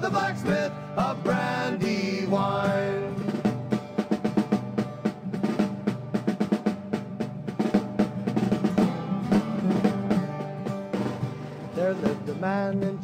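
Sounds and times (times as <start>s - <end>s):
snare drumming and rolls: 0.0s - 13.0s.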